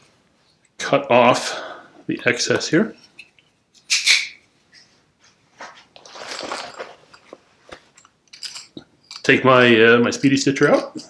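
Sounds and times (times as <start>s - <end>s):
canvas bag rustling: 6.0s - 7.4s.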